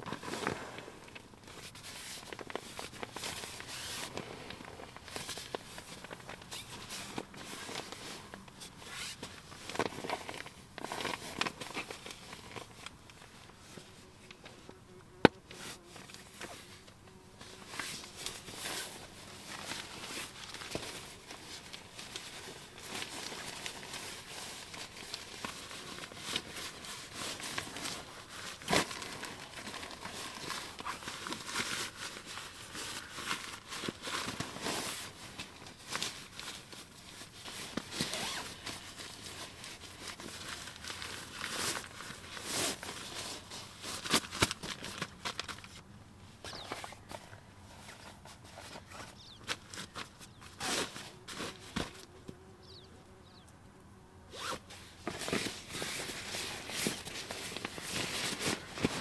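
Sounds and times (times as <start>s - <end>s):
nylon fabric rustling: 1.5s - 12.9s, 17.4s - 45.8s, 54.3s - 59.0s.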